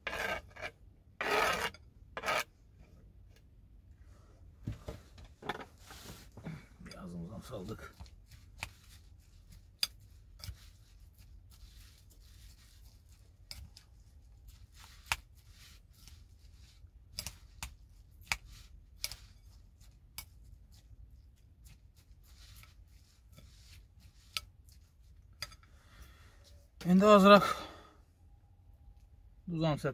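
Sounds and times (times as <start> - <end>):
metal spoon scraping ceramic bowl: 0.0 - 2.5.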